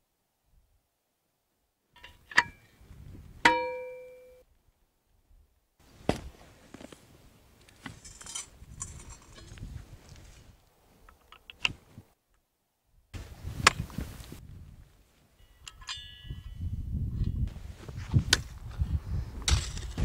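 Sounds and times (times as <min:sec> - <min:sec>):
shovel scraping among rocks: 0:07.8 - 0:10.4, 0:17.8 - 0:20.0.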